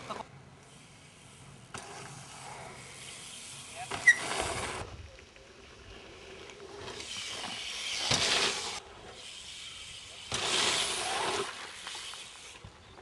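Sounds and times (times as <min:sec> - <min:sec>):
bike tyres and wind rushing: 0:00.0 - 0:13.0.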